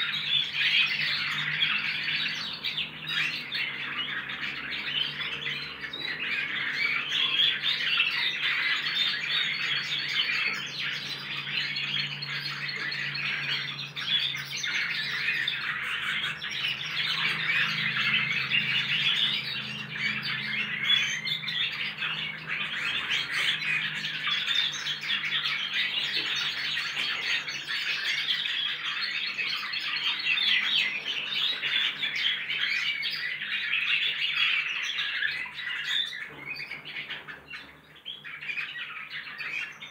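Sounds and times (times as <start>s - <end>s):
finches twittering and warbling: 0.0s - 39.9s.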